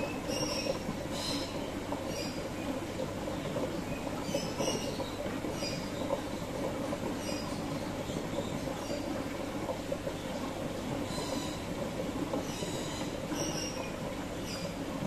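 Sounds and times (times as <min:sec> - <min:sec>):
aquarium water bubbling: 0:00.0 - 0:15.0.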